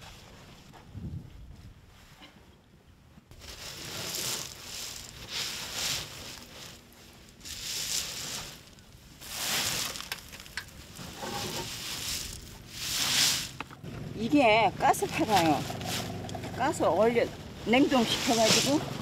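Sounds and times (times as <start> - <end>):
hand tool scraping through mud: 7.5 - 13.7, 14.8 - 16.7, 17.8 - 19.0.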